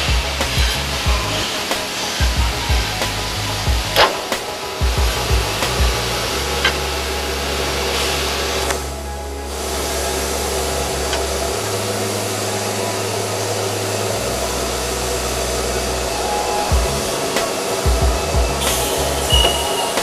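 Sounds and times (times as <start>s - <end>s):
background music: 0.0s - 20.0s
drill press cutting steel: 10.5s - 20.0s.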